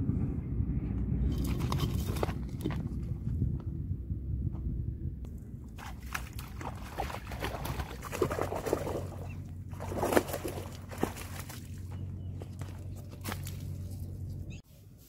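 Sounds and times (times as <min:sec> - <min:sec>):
shallow water splashing: 0:05.6 - 0:12.8.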